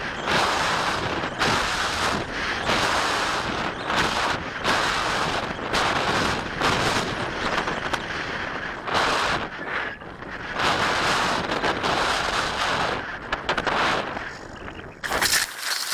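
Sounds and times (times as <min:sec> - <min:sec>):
wind rushing over microphone: 0:00.0 - 0:15.5.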